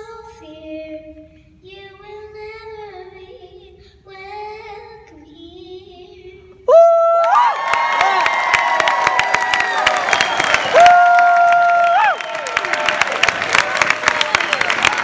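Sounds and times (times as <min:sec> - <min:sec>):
girl singing into a microphone: 0:00.0 - 0:06.7
audience cheering and applauding: 0:07.1 - 0:15.0.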